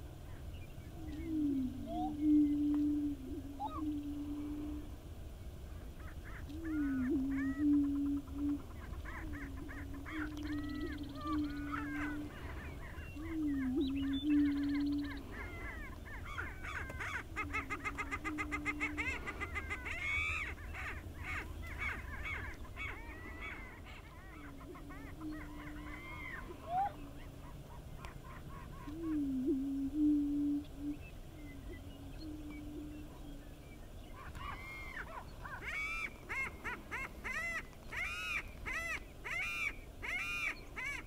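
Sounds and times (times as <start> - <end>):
prairie chickens booming: 0.0 - 41.0
higher cackling bird calls: 5.8 - 29.5, 34.1 - 41.0.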